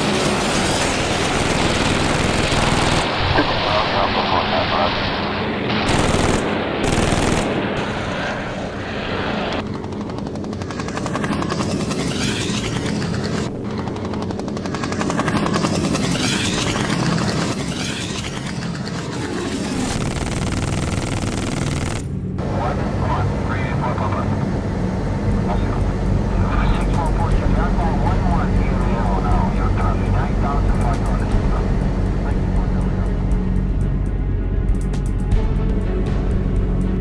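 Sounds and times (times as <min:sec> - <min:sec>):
aircraft engines running: 0:00.0 - 0:37.0
machine-gun fire: 0:00.8 - 0:03.1, 0:05.8 - 0:07.8, 0:19.8 - 0:22.1.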